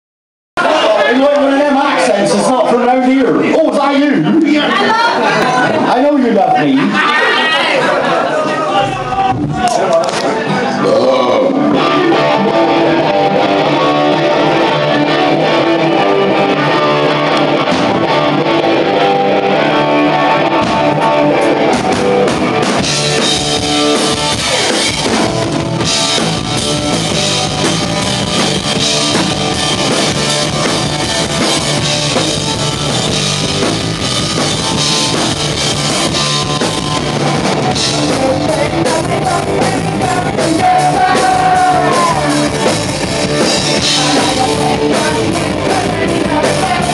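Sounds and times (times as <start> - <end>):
punk rock band playing live: 0.6 - 46.9
bass guitar: 8.7 - 46.9
electric guitar: 9.8 - 46.9
drum kit: 11.5 - 46.9
lead vocals singing: 36.1 - 46.9.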